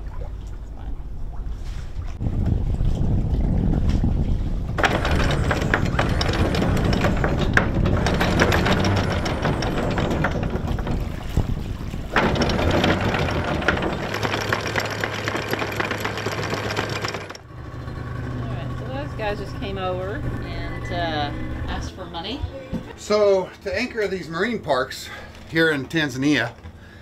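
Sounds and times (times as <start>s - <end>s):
low rumble: 0.0s - 23.1s
anchor chain rattling: 4.8s - 23.4s.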